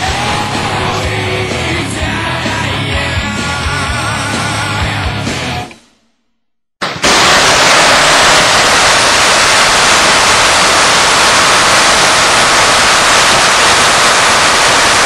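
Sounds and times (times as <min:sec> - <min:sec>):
machine gun firing: 0:06.8 - 0:15.0.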